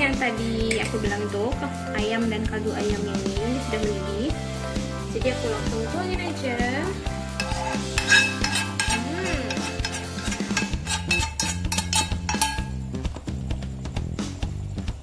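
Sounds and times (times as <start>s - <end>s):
background music: 0.0s - 15.0s
utensils scraping a frying pan: 7.1s - 12.8s
light sizzle: 7.3s - 12.8s.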